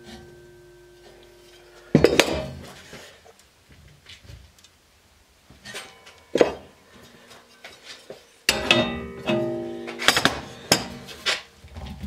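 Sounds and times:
ringing metallic clank: 0:05.6 - 0:06.9, 0:08.5 - 0:11.3
steel plates clanking: 0:05.6 - 0:11.5.

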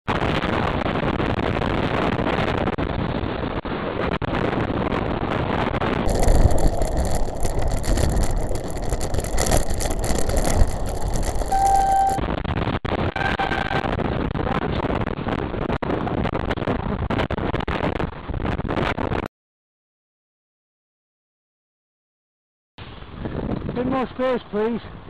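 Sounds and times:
wind and road noise: 0:00.1 - 0:19.3, 0:22.8 - 0:25.0
lorry passing with low rumble: 0:06.1 - 0:12.2
steady high tone: 0:06.1 - 0:12.2.

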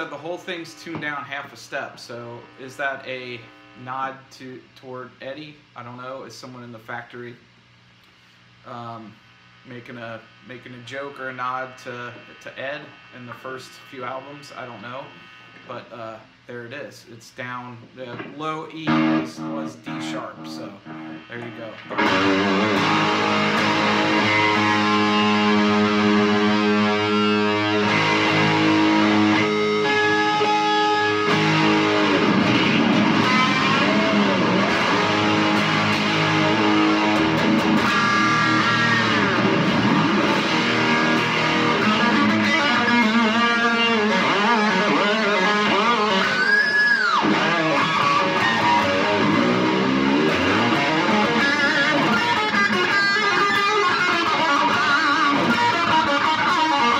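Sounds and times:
electric guitar through amplifier: 0:00.0 - 0:04.8, 0:18.0 - 0:56.9.

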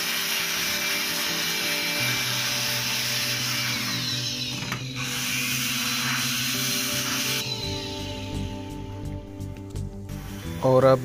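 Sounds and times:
electric air blower running: 0:00.0 - 0:07.8
background music: 0:00.0 - 0:11.0.

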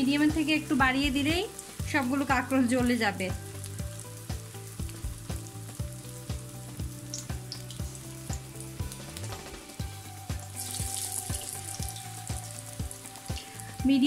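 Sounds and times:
background music with steady beat: 0:00.0 - 0:14.0
deep-frying sizzle: 0:00.0 - 0:14.0.

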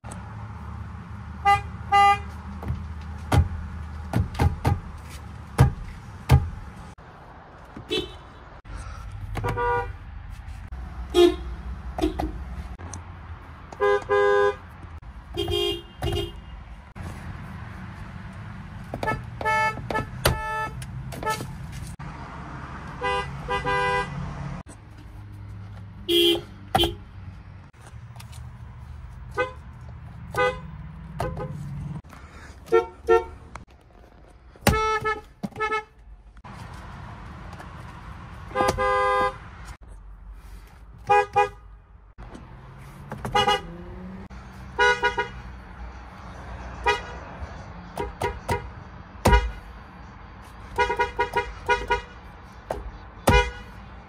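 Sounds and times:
car horns honking: 0:01.4 - 0:02.4, 0:07.8 - 0:08.6, 0:09.3 - 0:10.0, 0:11.0 - 0:12.7, 0:13.7 - 0:16.8, 0:18.9 - 0:21.6, 0:22.9 - 0:24.3, 0:26.0 - 0:27.2, 0:29.3 - 0:32.0, 0:32.6 - 0:33.6, 0:34.6 - 0:36.0, 0:38.5 - 0:39.6, 0:41.0 - 0:41.8, 0:43.1 - 0:45.5, 0:46.8 - 0:47.2, 0:47.8 - 0:49.7, 0:50.6 - 0:53.8.

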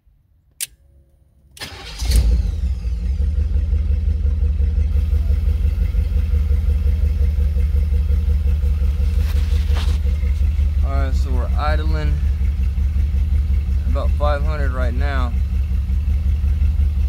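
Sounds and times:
car engine cranking: 0:01.6 - 0:03.0, 0:04.9 - 0:17.0
car engine idling: 0:01.6 - 0:17.0.

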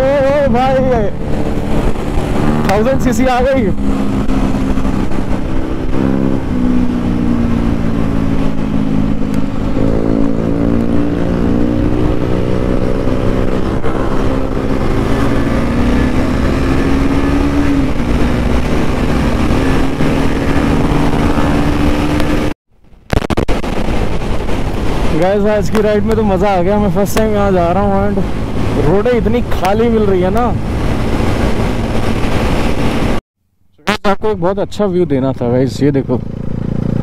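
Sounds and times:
motorcycle engine running: 0:00.0 - 0:22.6, 0:35.8 - 0:37.0.

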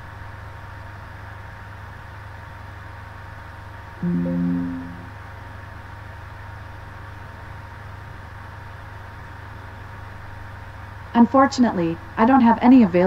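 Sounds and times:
short electronic tone: 0:04.0 - 0:05.1
low hum and hiss: 0:04.0 - 0:05.4.

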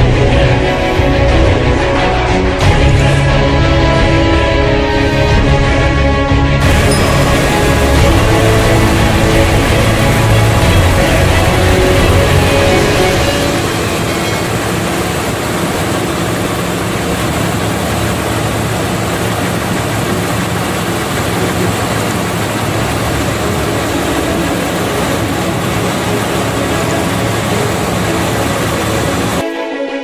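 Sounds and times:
boat engine running: 0:06.6 - 0:29.4
rough sea: 0:06.6 - 0:29.5.

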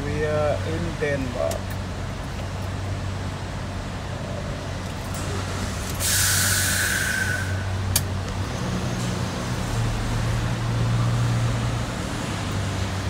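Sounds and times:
vehicle engine hum: 0:00.0 - 0:13.0
air brake hiss: 0:05.8 - 0:07.8.

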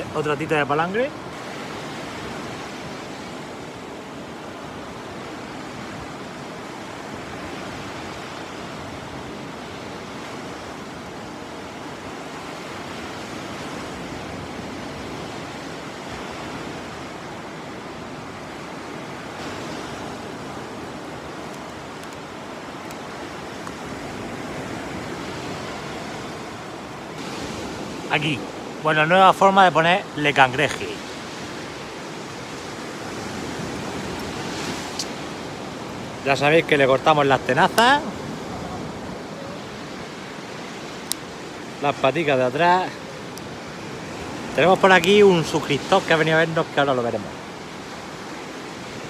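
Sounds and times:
sea surf washing onto beach: 0:00.0 - 0:49.0.

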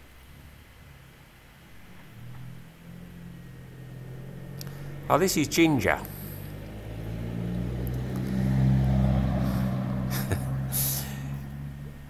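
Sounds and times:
vehicle engine hum passing: 0:00.0 - 0:12.0.

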